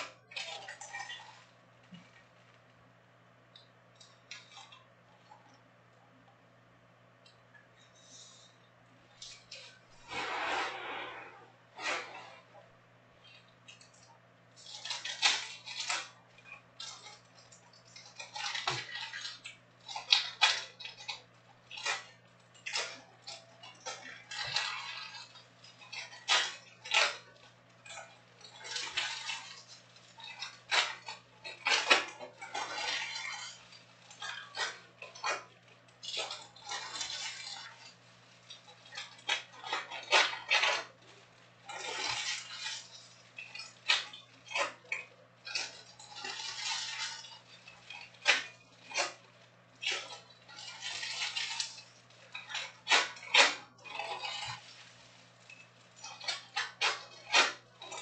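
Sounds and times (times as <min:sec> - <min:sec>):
foil wrappers crinkling: 0:13.2 - 0:58.0.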